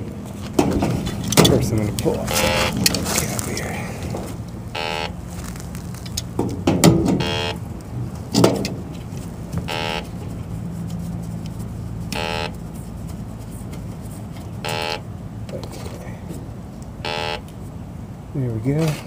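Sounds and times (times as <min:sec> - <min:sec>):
air conditioner condenser hum: 0:00.0 - 0:19.0
knocks and rustles: 0:00.2 - 0:04.4, 0:05.3 - 0:07.3, 0:08.1 - 0:14.6
leak detector beeping: 0:02.2 - 0:03.0, 0:04.7 - 0:05.6, 0:07.1 - 0:07.6, 0:09.6 - 0:10.2, 0:12.1 - 0:12.6, 0:14.6 - 0:15.1, 0:17.0 - 0:17.5.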